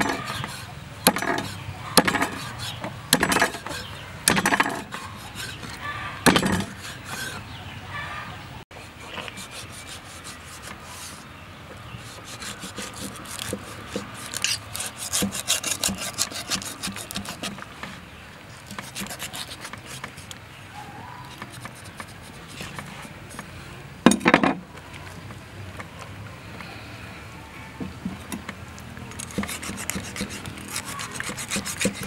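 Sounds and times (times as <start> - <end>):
cleaver scraping rough skin: 0.0 - 7.5, 9.1 - 11.2, 12.0 - 18.0, 18.6 - 20.4, 21.3 - 23.5, 29.1 - 32.0.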